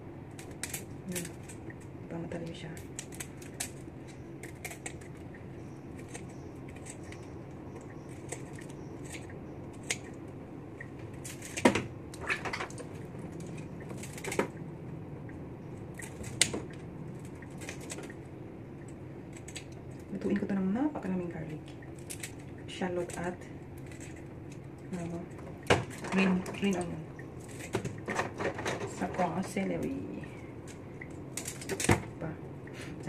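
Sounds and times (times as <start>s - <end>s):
steady low hum: 0.0s - 33.0s.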